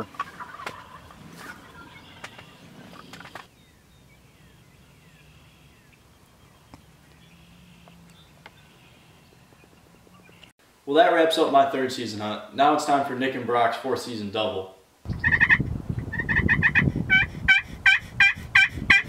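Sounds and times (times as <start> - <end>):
distant birdsong chirps: 0.0 - 10.6, 15.1 - 16.7.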